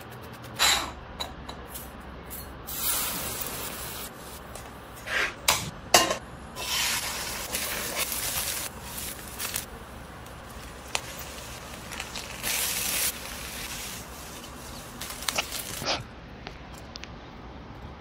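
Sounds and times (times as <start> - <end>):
stove hissing: 2.6 - 16.1.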